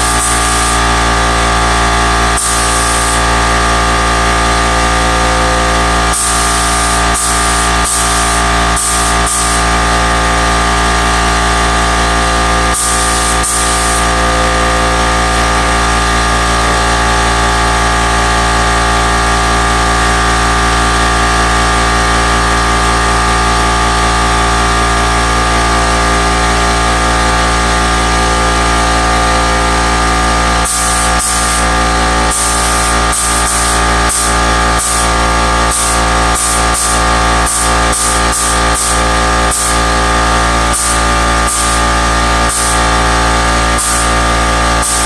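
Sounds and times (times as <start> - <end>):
electronic music: 0.0 - 17.5.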